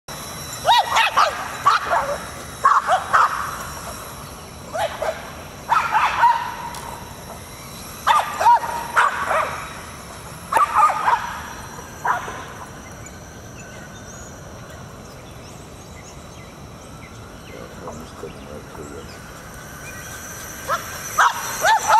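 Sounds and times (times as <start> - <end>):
dogs barking and yipping: 0.2 - 13.6, 19.2 - 21.9.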